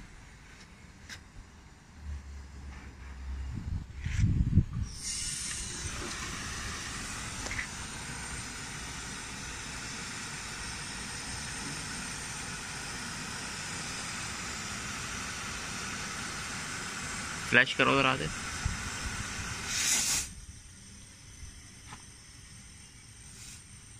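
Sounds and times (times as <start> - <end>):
gas hissing from a pipe: 4.0 - 23.9.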